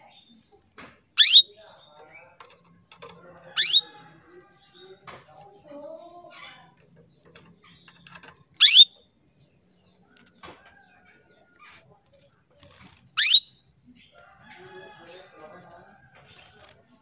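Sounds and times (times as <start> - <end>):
faint bird chirps: 0.0 - 5.0, 5.6 - 17.0
canary calls rising in pitch: 1.2 - 1.5, 3.6 - 3.9, 8.6 - 8.9, 13.2 - 13.5.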